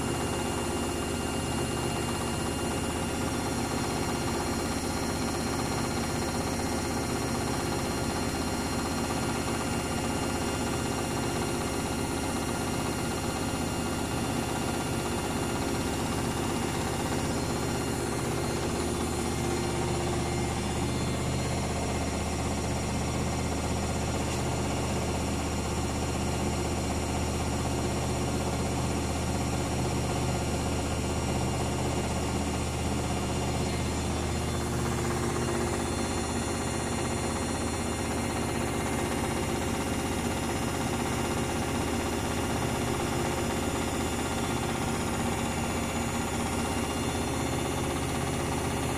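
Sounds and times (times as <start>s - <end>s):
washing machine spinning: 0.0s - 48.9s.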